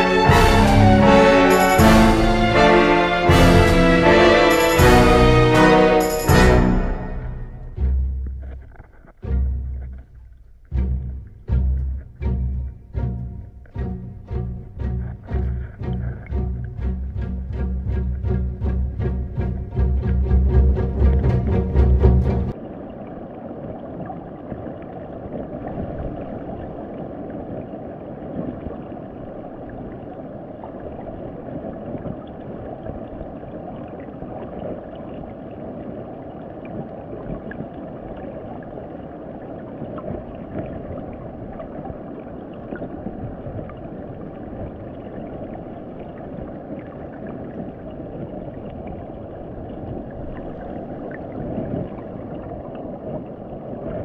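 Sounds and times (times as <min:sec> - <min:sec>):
muffled underwater water rush: 0:00.0 - 0:54.0.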